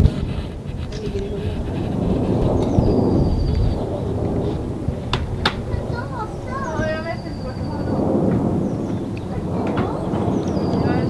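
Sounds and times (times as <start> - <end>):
jet airliner engines rumbling: 0.0 - 11.0.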